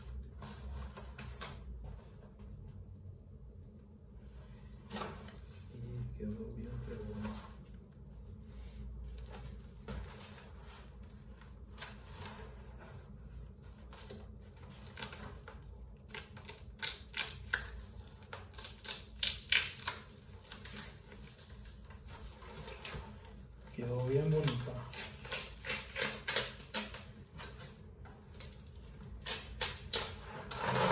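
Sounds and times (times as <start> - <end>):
plastic wrapping crinkling and tearing: 13.7 - 30.9.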